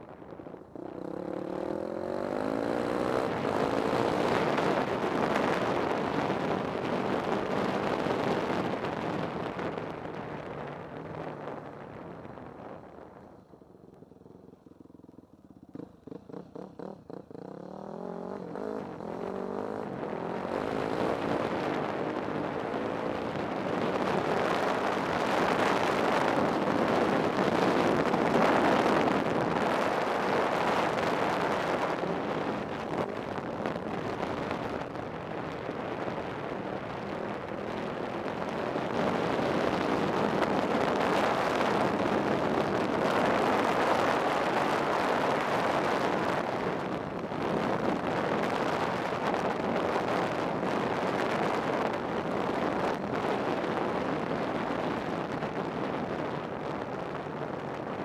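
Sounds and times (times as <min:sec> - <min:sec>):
off-road vehicle engine accelerating: 0:00.8 - 0:06.4, 0:15.7 - 0:33.0.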